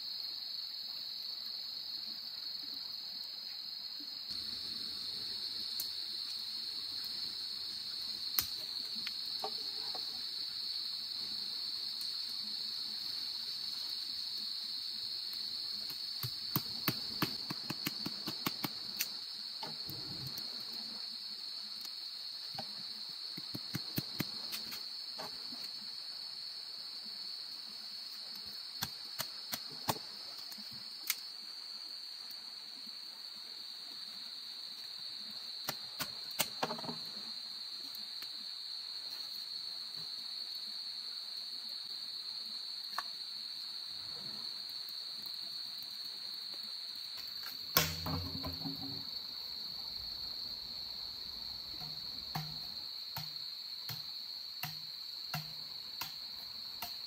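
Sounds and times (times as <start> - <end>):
high-pitched insect chorus: 0.0 - 57.0
sharp clicks and knocks: 47.8 - 49.1.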